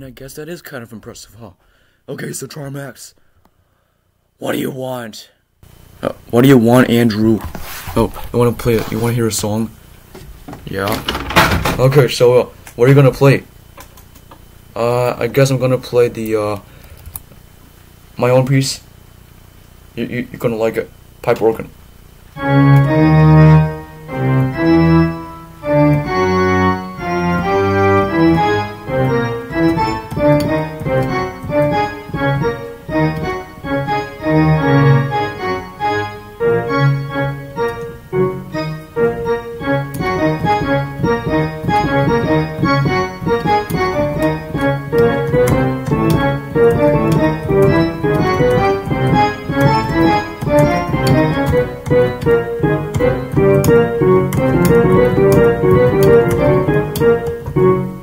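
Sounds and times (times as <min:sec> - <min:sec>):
organ chords over bass line: 0:19.9 - 0:58.0.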